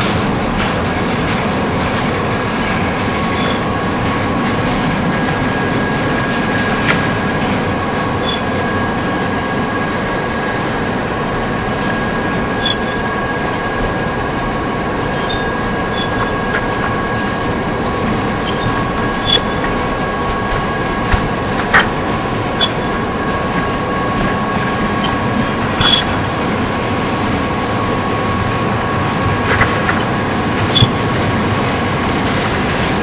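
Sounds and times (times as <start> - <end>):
train wheels rumbling on rails: 0.0 - 33.0
high squeal: 3.2 - 3.8, 7.4 - 8.8, 11.8 - 13.3, 15.1 - 17.2, 18.4 - 20.2, 23.9 - 26.3.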